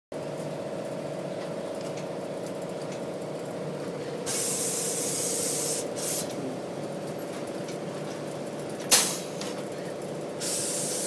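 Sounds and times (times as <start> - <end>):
garment press humming: 0.2 - 11.0
loud steam hiss: 4.3 - 6.3, 10.4 - 11.0.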